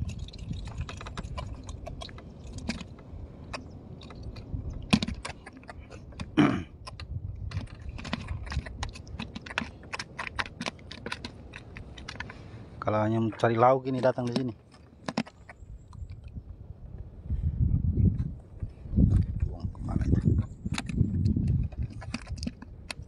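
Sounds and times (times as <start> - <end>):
fish clicking in plastic bucket: 0.0 - 12.4, 13.9 - 16.4, 20.4 - 23.0.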